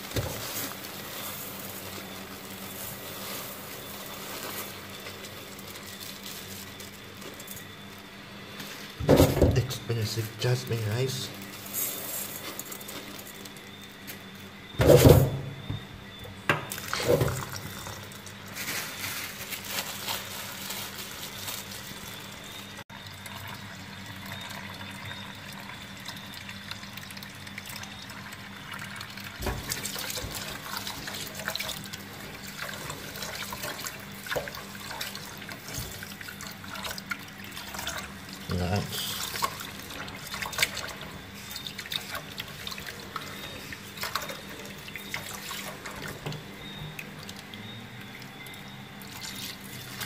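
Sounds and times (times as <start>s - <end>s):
water splashing in a pot: 16.4s - 50.0s.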